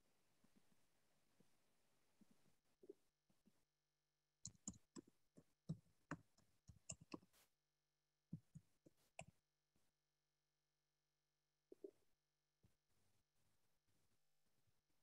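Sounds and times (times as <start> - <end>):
faint irregular clicks and taps: 4.4 - 7.5, 8.3 - 9.4.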